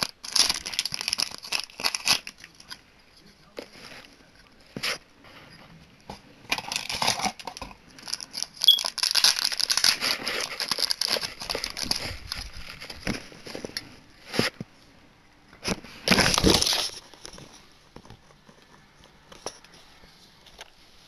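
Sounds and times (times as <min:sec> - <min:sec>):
foil wrapper crinkling: 0:00.0 - 0:02.8, 0:06.5 - 0:14.5, 0:15.9 - 0:17.6.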